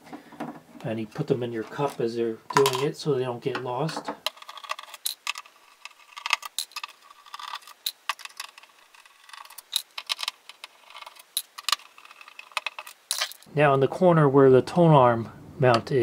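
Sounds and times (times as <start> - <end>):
metal screws rattling in a cup: 4.3 - 13.5.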